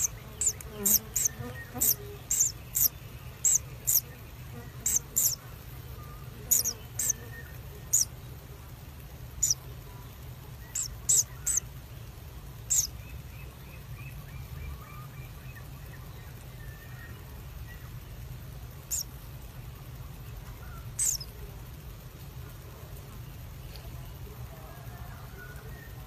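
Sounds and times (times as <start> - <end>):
kingfishers calling: 0.0 - 4.1, 4.8 - 5.4, 6.5 - 7.2, 7.9 - 8.1, 9.4 - 9.6, 10.7 - 11.7, 12.7 - 12.9, 18.9 - 19.1, 20.7 - 21.3
soft peeps: 0.0 - 8.3, 9.3 - 11.7, 12.6 - 17.9, 18.8 - 19.2, 20.4 - 21.4
low steady hum: 0.0 - 26.0.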